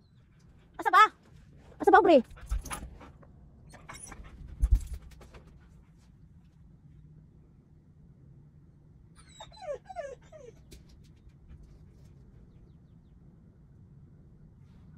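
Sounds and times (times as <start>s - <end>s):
low steady hum: 0.0s - 14.9s
husky whining: 3.7s - 4.7s, 9.2s - 11.2s.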